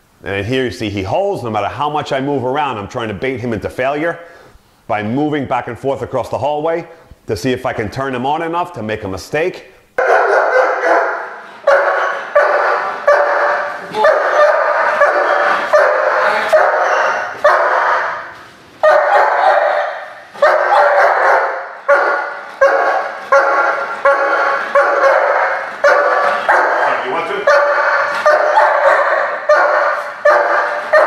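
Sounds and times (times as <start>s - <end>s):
dog barking with echo: 10.0s - 31.0s.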